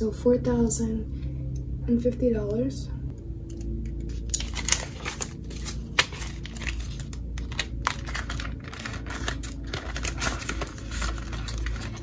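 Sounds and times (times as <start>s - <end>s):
banknotes rustling and crinkling: 4.1s - 12.0s.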